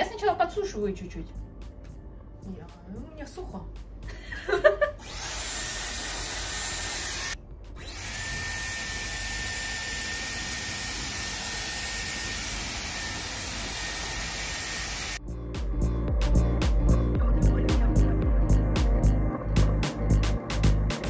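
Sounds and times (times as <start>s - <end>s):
hair styler air rush and whine: 5.0s - 15.2s.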